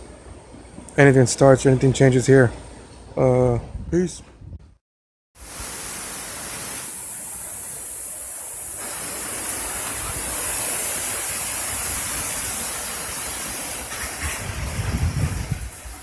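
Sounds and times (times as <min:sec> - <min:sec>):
wind: 0:00.0 - 0:04.8, 0:05.4 - 0:16.0
rain: 0:05.4 - 0:16.0.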